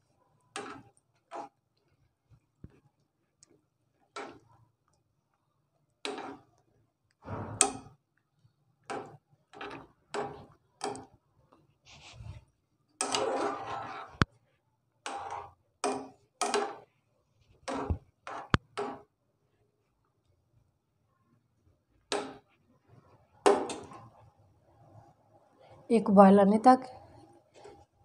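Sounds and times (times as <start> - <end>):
metal utensil scraping steel pan: 13.0 - 14.2.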